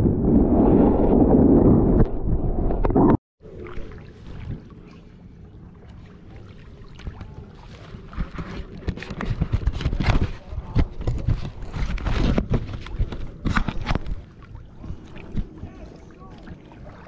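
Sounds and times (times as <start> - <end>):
camera bumping and rubbing: 8.2 - 14.2.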